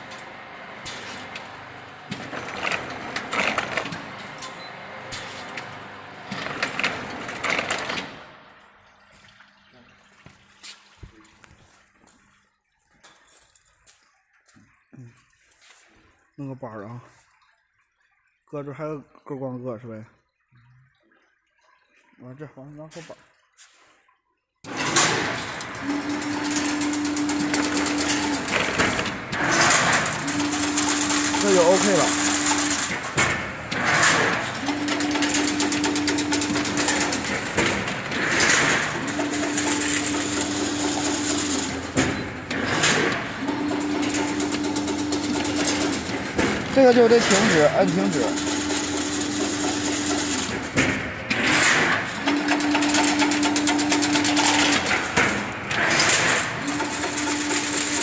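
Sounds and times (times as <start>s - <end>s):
fence weaving machine clattering: 2.1s - 8.2s, 24.7s - 58.0s.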